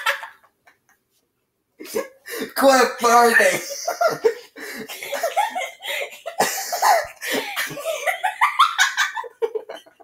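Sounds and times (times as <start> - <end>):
teenagers laughing: 3.5 - 10.0
person coughing: 6.4 - 7.8.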